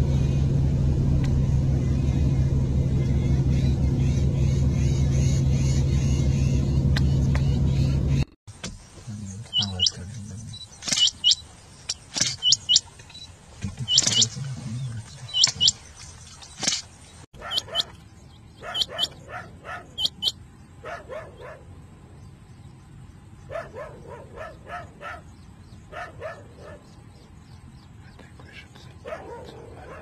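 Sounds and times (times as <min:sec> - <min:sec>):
quail calling: 0:09.4 - 0:16.8, 0:17.4 - 0:18.0, 0:18.6 - 0:21.6.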